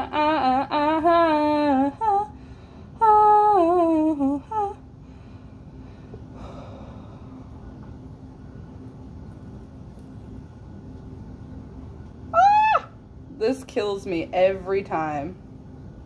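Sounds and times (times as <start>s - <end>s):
woman humming: 0.0s - 2.3s, 3.0s - 4.8s, 12.4s - 13.0s.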